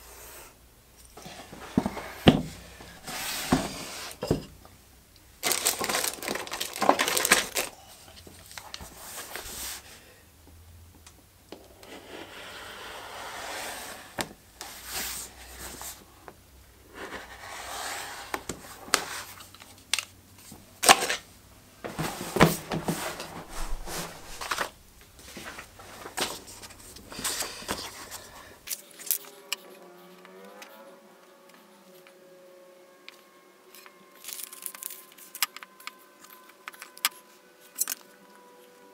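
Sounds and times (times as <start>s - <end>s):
paper sheet handled: 21.9s - 28.3s
leather rustling and scraping: 21.9s - 29.4s.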